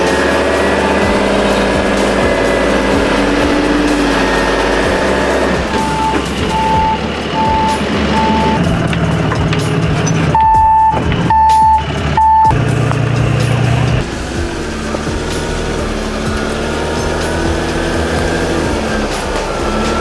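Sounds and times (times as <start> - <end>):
truck backup alarm beeping: 0.0 - 12.8
truck engine running: 0.0 - 20.0.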